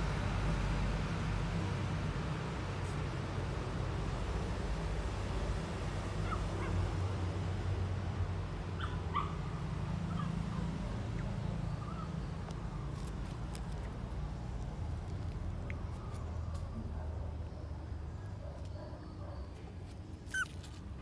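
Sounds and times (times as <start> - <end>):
puppies whimpering: 20.2 - 20.8.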